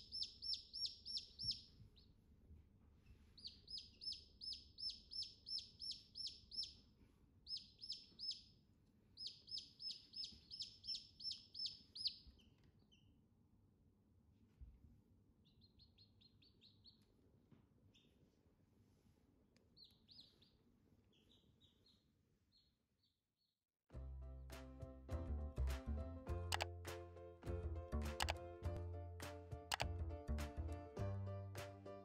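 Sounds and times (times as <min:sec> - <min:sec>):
chicks peeping: 0:00.0 - 0:02.1, 0:03.1 - 0:06.8, 0:07.5 - 0:08.5, 0:09.2 - 0:13.0, 0:19.8 - 0:22.7.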